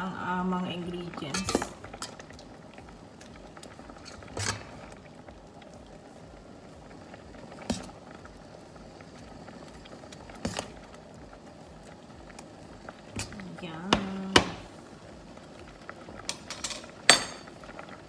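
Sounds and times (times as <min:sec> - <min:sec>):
soup bubbling in a pot: 0:00.0 - 0:18.0.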